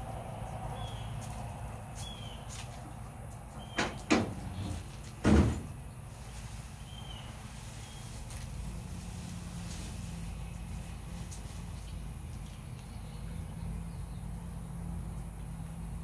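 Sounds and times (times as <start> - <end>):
heavy thump: 3.8 - 5.8.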